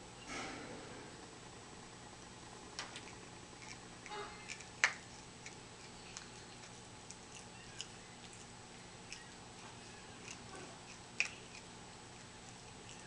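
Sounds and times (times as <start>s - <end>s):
lemur chewing leaves: 2.8s - 13.0s.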